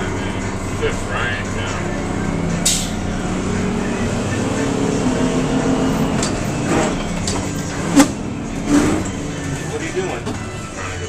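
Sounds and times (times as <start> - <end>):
bus engine running: 0.0 - 11.0
clicks and rattles from bus: 6.2 - 9.2, 10.0 - 10.6.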